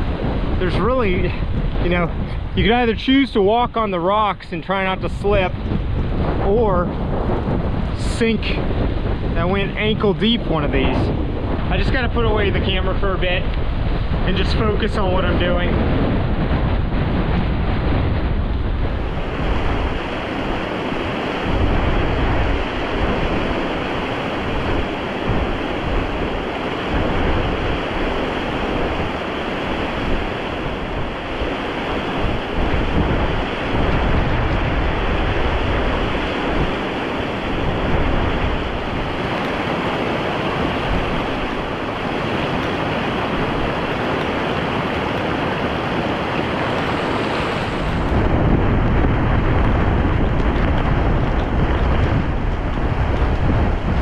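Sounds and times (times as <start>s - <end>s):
fast mountain stream rushing: 0.0s - 54.0s
wind buffeting microphone: 0.0s - 54.0s.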